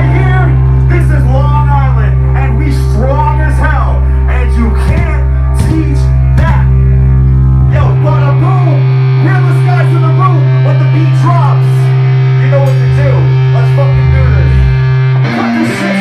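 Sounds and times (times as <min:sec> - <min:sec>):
man shouting into microphone: 0:00.0 - 0:06.8
electric guitar and bass droning: 0:00.0 - 0:16.0.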